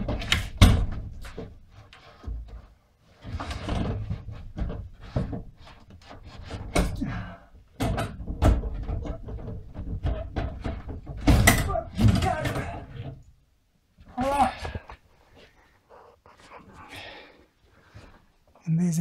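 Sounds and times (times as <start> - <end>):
knocks bumps and scraping: 0.0 - 13.3.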